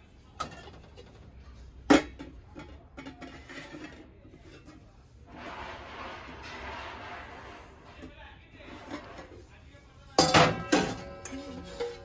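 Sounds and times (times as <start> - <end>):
metal containers clinking: 0.3 - 9.5, 10.1 - 12.0.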